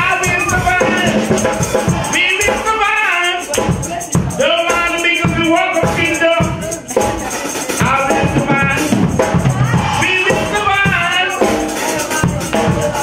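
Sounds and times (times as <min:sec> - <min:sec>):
man singing into microphone: 0:00.0 - 0:01.4, 0:02.0 - 0:07.1, 0:07.7 - 0:09.1, 0:09.9 - 0:13.0
backing music with steady beat: 0:00.0 - 0:13.0.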